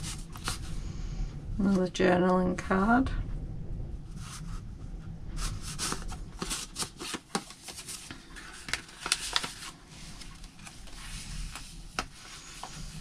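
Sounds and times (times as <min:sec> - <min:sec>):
paper rustling and sliding: 0:00.0 - 0:00.8, 0:04.1 - 0:04.6, 0:05.4 - 0:13.0.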